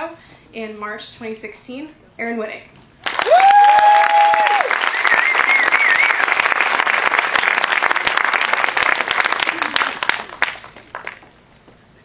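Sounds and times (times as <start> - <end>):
audience applauding: 3.0 - 11.3
audience cheering and whooping: 3.1 - 10.4.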